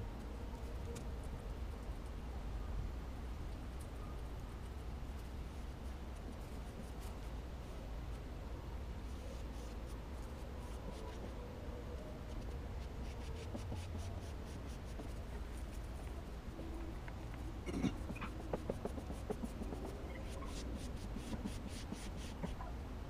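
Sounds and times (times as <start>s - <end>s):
scratchy rubbing of vinyl film: 18.1s - 22.7s.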